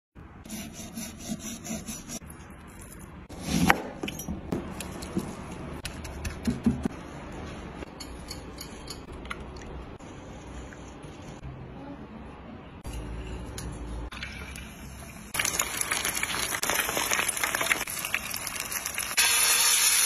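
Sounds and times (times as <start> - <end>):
knife sawing through fish: 0.5 - 2.2.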